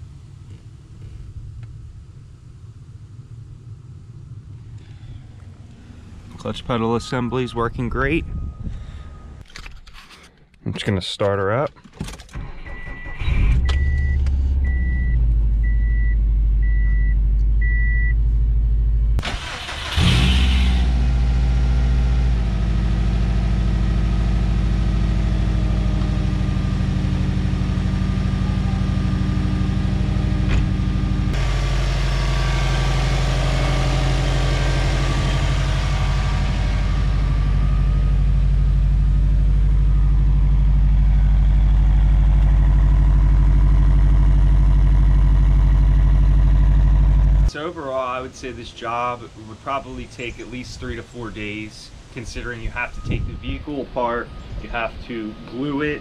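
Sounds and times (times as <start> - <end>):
car engine starting and idling: 0.0 - 9.9, 10.9 - 56.0
warning chime beeping: 6.4 - 9.4.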